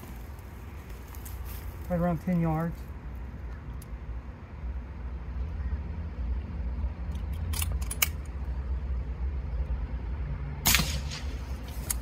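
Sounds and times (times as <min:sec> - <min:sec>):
steady low rumble: 0:00.0 - 0:12.0
air rifle shot: 0:10.6 - 0:12.0.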